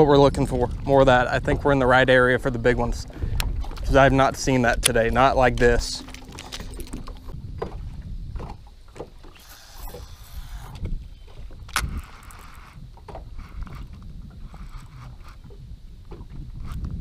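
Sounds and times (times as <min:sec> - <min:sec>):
small waves lapping against boat: 0:00.0 - 0:17.0
wind on microphone: 0:00.0 - 0:17.0
fishing reel clicks and knocks: 0:11.7 - 0:15.6.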